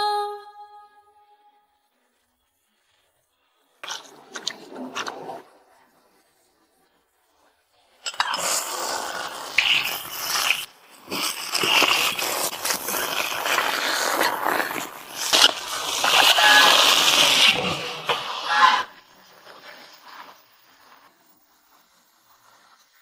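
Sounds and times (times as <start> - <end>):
metal spatula scraping wok: 15.2 - 18.9.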